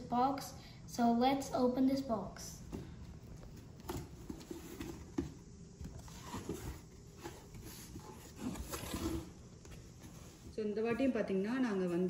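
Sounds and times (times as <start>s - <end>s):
cardboard box rustling: 3.5s - 10.5s.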